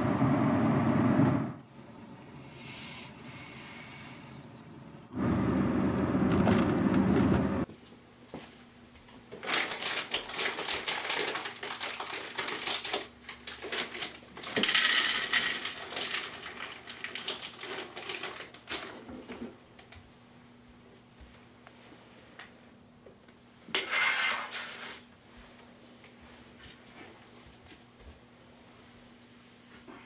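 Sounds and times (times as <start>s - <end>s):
low hum: 0.0s - 7.7s.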